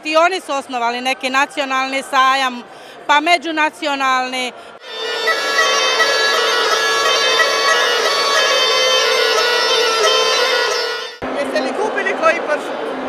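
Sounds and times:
bagpipe playing a tune: 4.8 - 11.2.

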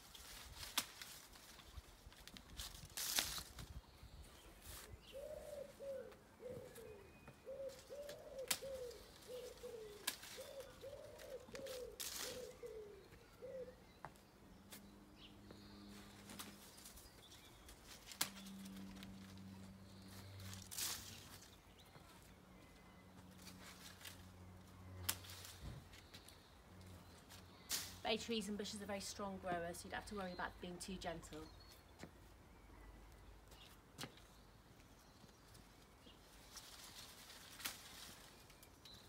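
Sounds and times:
pigeon cooing: 5.0 - 13.9.

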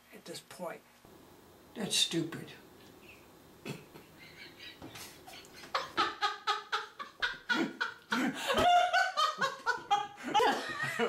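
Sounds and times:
hearty laughter: 3.6 - 11.0.

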